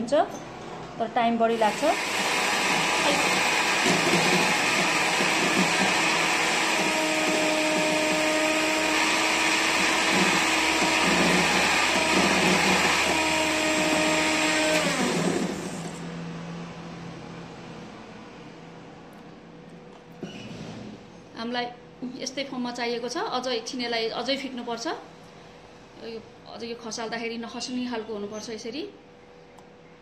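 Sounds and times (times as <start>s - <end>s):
electric hand mixer running: 1.6s - 16.0s.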